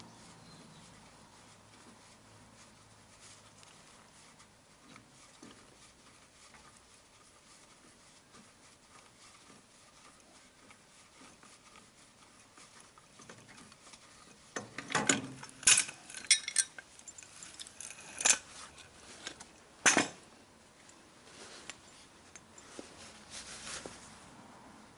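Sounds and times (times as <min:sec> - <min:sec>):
sharp clinks and knocks: 0:14.6 - 0:20.2.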